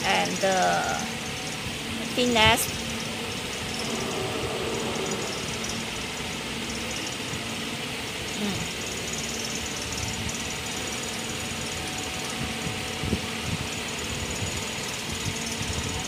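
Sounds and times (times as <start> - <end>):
machinery humming with fan hiss: 0.0 - 16.0.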